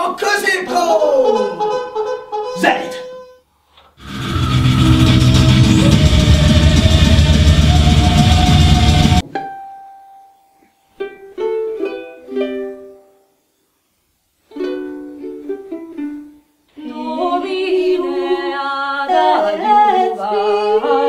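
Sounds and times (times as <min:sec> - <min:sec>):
plucked string instrument: 0:04.0 - 0:10.0, 0:11.0 - 0:13.1, 0:14.5 - 0:16.4.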